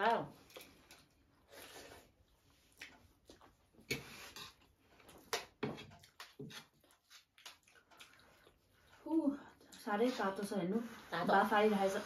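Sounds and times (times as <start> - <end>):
wet chewing and lip smacks: 2.2 - 4.0, 4.6 - 9.8.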